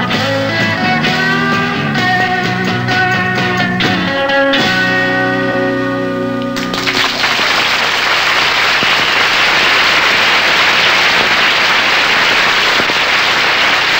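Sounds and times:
audience applauding: 6.6s - 13.9s.

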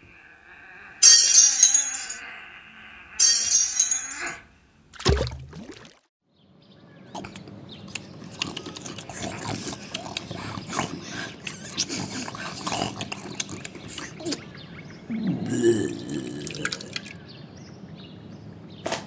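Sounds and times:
pigs chewing and munching: 7.2s - 14.4s.

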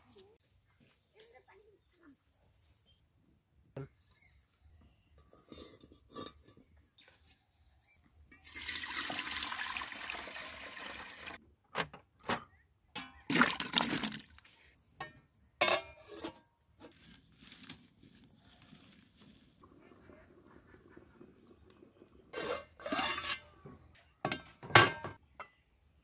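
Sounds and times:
water pouring into metal pot: 8.4s - 11.4s, 13.3s - 14.4s.

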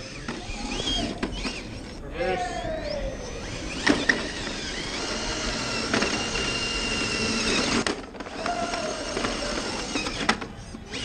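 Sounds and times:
electric motor whining: 0.0s - 11.0s.

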